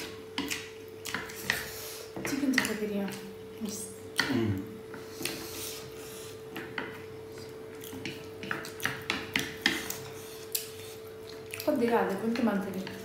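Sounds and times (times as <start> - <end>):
chopsticks clicking on plates: 2.2 - 3.2, 7.8 - 10.7.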